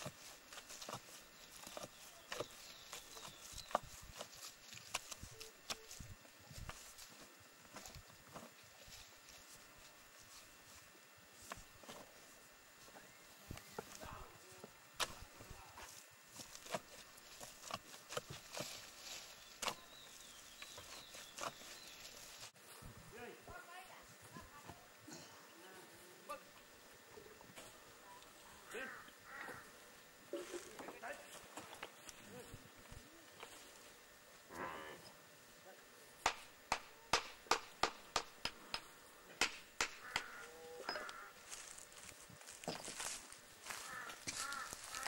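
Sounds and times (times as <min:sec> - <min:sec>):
digging blade chopping dry earth: 0:00.0 - 0:06.8.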